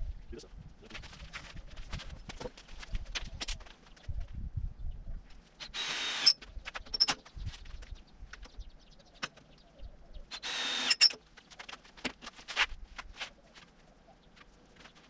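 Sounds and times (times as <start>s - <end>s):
power tool bursts: 5.6s - 6.4s, 10.3s - 11.2s.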